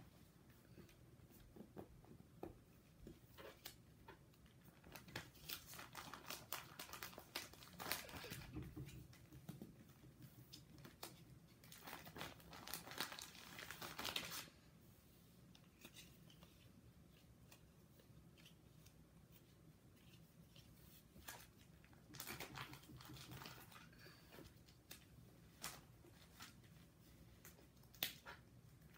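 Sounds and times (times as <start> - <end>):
plastic sleeve pages crinkling: 4.5 - 8.4, 10.4 - 14.6, 15.6 - 28.9.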